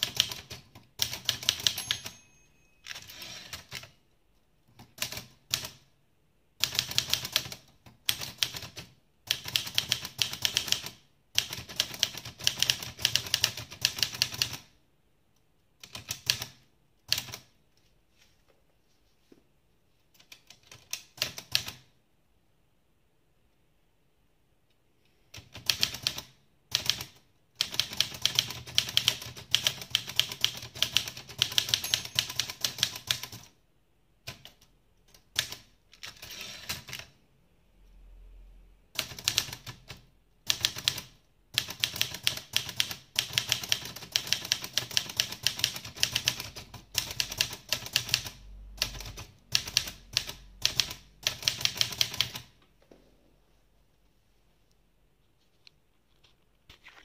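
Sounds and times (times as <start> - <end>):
manual typewriter typing: 0.0 - 2.2, 2.8 - 4.0, 4.7 - 5.8, 6.6 - 14.7, 15.8 - 17.5, 20.1 - 21.9, 25.3 - 33.5, 34.2 - 37.2, 39.0 - 52.6.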